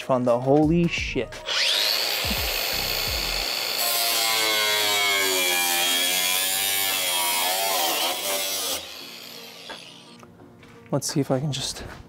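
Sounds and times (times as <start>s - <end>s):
drill nibbler cutting sheet metal: 1.4s - 10.2s.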